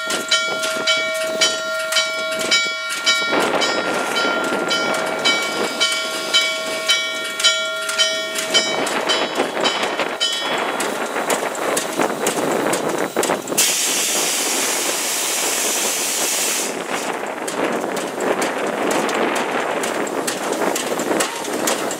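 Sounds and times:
locomotive bell ringing: 0.0s - 11.8s, 20.5s - 21.9s
steam locomotive rolling: 0.0s - 21.9s
loud steam hiss: 10.0s - 17.3s.

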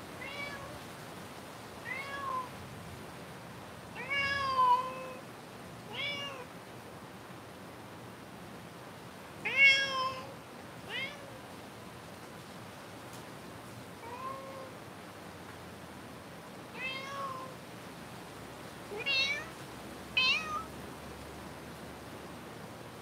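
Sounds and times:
faint hiss: 0.0s - 23.0s
cat meowing: 0.2s - 0.8s, 1.8s - 2.5s, 4.0s - 5.2s, 5.9s - 6.5s, 9.4s - 11.4s, 14.0s - 14.8s, 16.8s - 17.6s, 18.9s - 19.6s, 20.2s - 20.7s.

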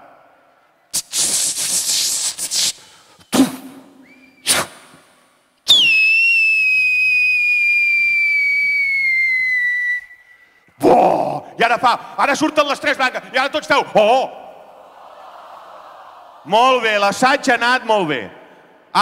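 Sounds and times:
short puffs: 0.9s - 5.2s
long falling whistle: 5.7s - 10.7s.

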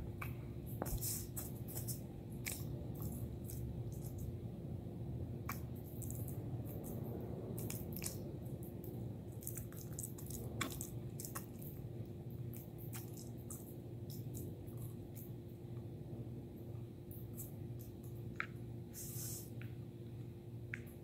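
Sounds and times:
steady low hum: 0.0s - 21.0s
puppy gnawing a chew: 5.5s - 15.4s.

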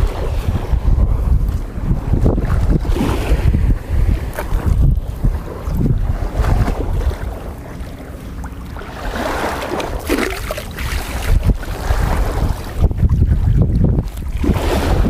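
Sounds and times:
small surf: 0.0s - 15.0s
wind buffeting microphone: 0.0s - 15.0s
cast net splashing into water: 9.3s - 11.0s.

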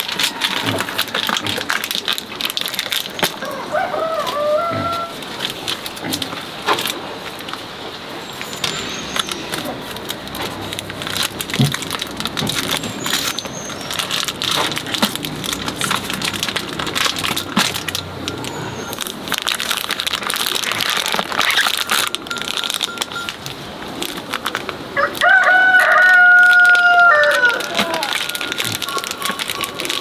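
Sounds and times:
mushrooms cracking off: 0.0s - 7.6s, 8.4s - 30.0s
plastic bags crinkling: 0.0s - 30.0s
rooster crowing: 3.4s - 5.2s, 25.0s - 29.0s.

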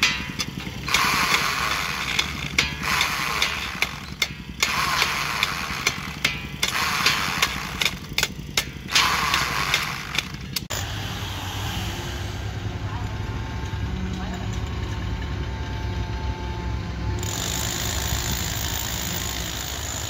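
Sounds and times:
steel rods clicking on rebar: 0.0s - 10.7s
handheld power tool running: 0.0s - 10.8s, 17.2s - 20.0s.

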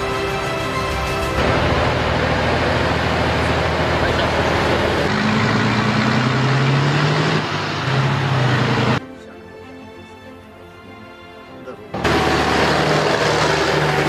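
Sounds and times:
heavy trucks driving past: 0.0s - 9.0s, 11.9s - 14.0s.

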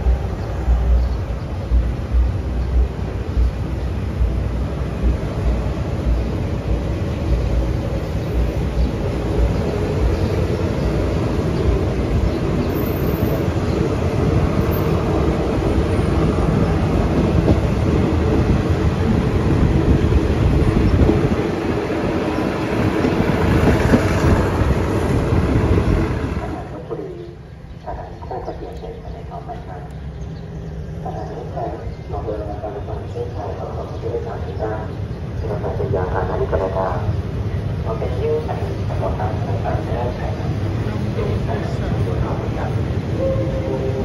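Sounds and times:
train wheels rumbling and rattling: 0.0s - 28.6s.

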